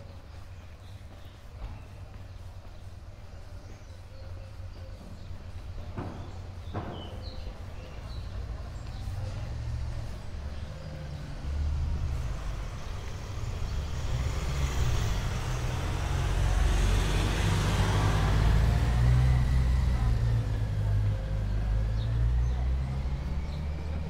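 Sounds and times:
steady low traffic rumble: 0:00.0 - 0:24.0
vehicle passing close by: 0:09.6 - 0:24.0.

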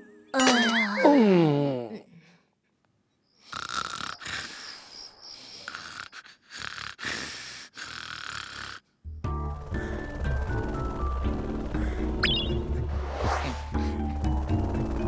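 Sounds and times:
music: 0:00.0 - 0:00.7, 0:09.0 - 0:15.0
cartoon wolf snoring: 0:03.4 - 0:15.0.

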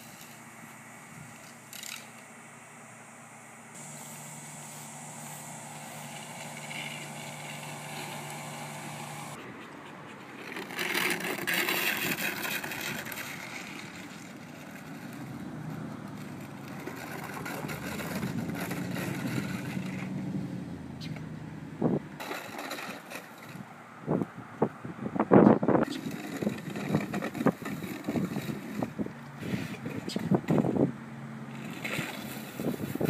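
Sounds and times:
low hum: 0:00.0 - 0:09.4
plastic pipe dragged over gravel: 0:03.8 - 0:09.4, 0:10.4 - 0:20.2, 0:22.2 - 0:23.6, 0:25.8 - 0:30.7, 0:31.5 - 0:33.0.

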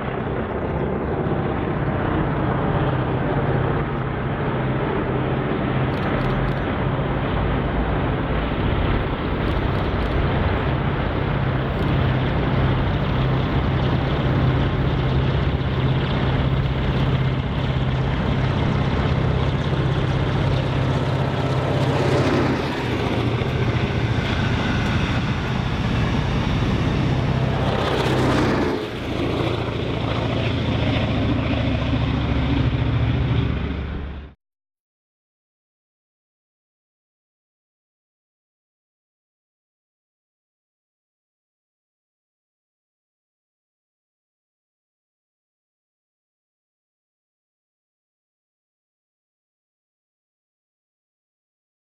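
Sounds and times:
diesel train engine drone: 0:00.0 - 0:34.4.

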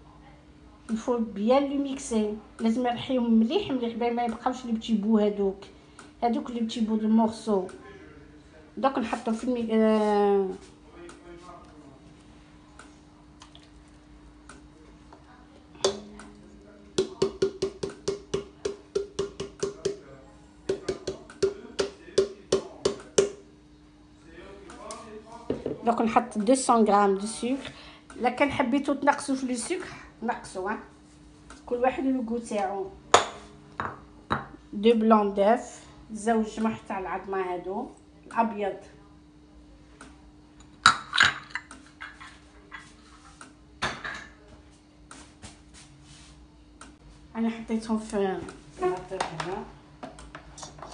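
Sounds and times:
knocking on steel mixing bowl: 0:17.0 - 0:20.0, 0:20.7 - 0:23.4.

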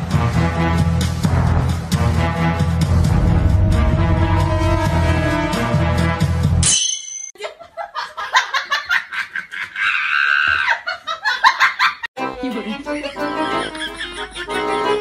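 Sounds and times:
music: 0:00.0 - 0:06.7, 0:12.2 - 0:15.0
high-pitched giggling laughter: 0:13.2 - 0:15.0.

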